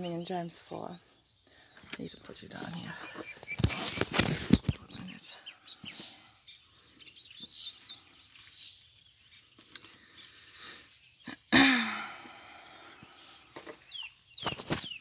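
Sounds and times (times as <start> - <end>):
small birds chirping: 0.0 - 15.0
sharp rustles: 3.1 - 5.0, 14.4 - 15.0.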